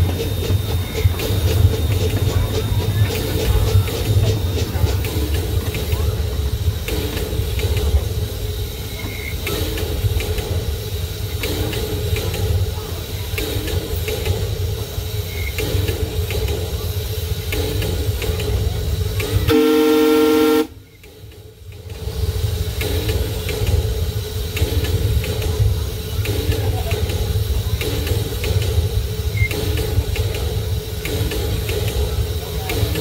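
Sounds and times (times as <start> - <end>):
miniature steam train rumbling: 0.0 - 33.0
wheels clicking on rails: 0.0 - 33.0
steam whistle blast: 19.4 - 20.8.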